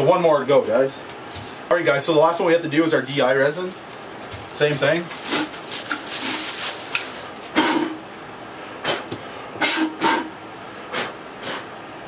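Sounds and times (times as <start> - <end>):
plastic packaging crinkling: 3.5 - 7.6.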